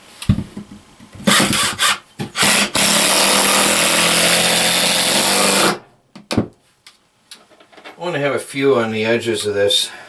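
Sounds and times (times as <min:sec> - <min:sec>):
cordless drill driving screws: 0:01.3 - 0:05.8.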